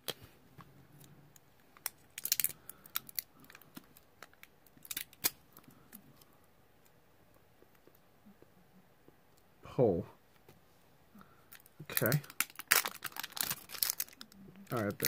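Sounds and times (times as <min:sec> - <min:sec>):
plastic bag crinkling: 0:01.8 - 0:05.2, 0:11.5 - 0:15.0.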